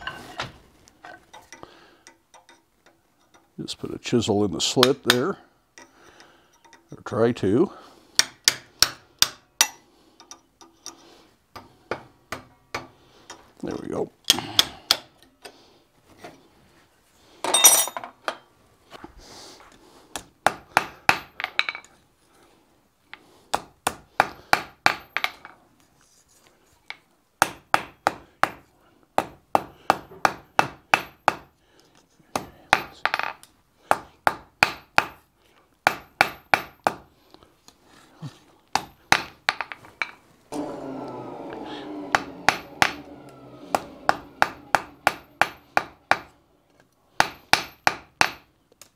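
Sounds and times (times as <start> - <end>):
rough rasping sound: 40.5 - 46.7
hammer striking iron on anvil: 42.1 - 46.4, 47.2 - 48.5.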